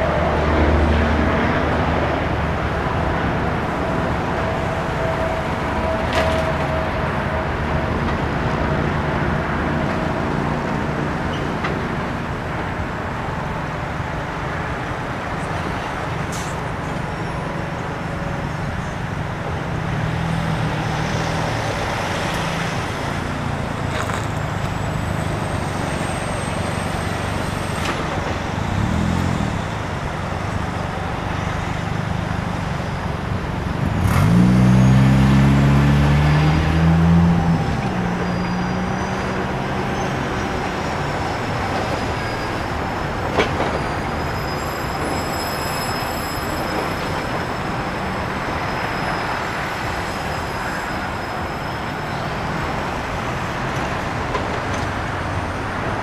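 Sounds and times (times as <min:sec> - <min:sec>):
trucks driving past: 0:00.0 - 0:56.0.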